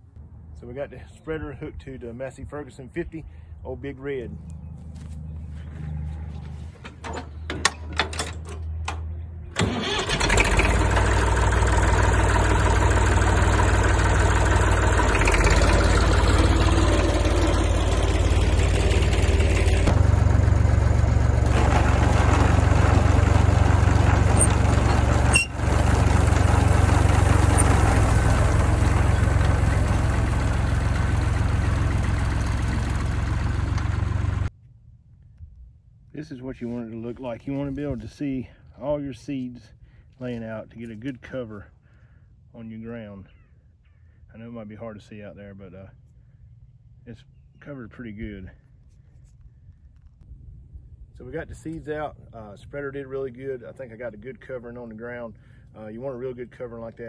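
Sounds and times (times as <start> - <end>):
tractor engine running: 5.0 - 34.5
engine knocks: 10.2 - 34.5.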